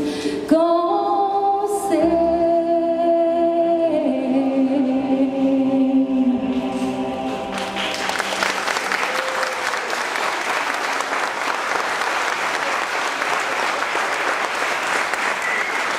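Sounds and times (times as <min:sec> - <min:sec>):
audience applause: 0:07.5 - 0:15.9.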